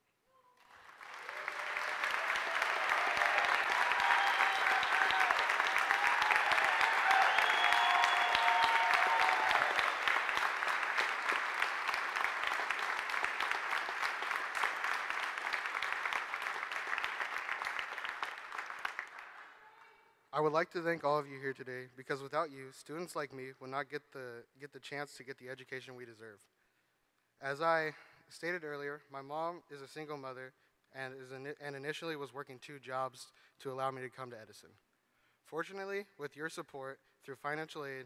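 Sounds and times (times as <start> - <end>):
large audience applauding: 0.6 - 19.6.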